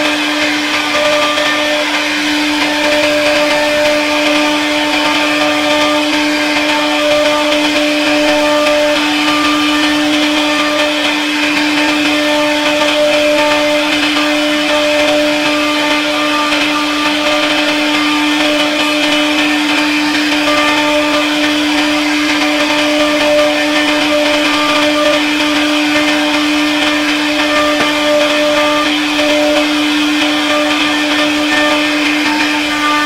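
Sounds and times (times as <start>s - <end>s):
router spindle whine: 0.0s - 33.0s.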